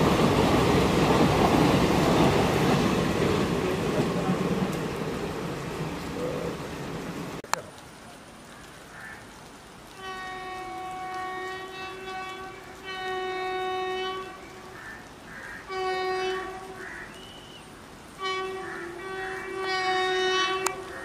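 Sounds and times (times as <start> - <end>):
distant locomotive horn blasts: 9.9 - 21.0.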